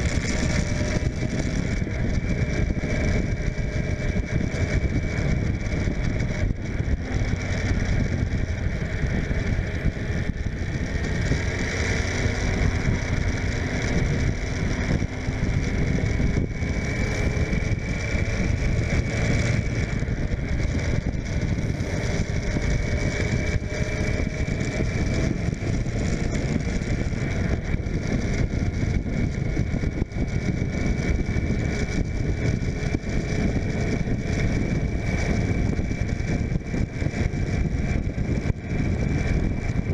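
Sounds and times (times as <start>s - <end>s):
motorcycle engine running: 0.0s - 39.9s
wind noise on microphone: 0.0s - 39.9s.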